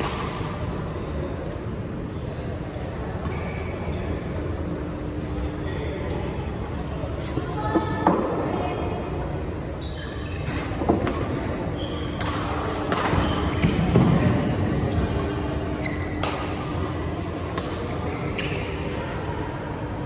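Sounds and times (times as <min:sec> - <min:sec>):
racket hitting shuttlecock: 0:00.0 - 0:00.5, 0:12.2 - 0:14.2, 0:16.2 - 0:17.9
shoes squeaking on court: 0:03.2 - 0:04.2, 0:09.8 - 0:13.8, 0:15.2 - 0:17.0, 0:17.8 - 0:19.0.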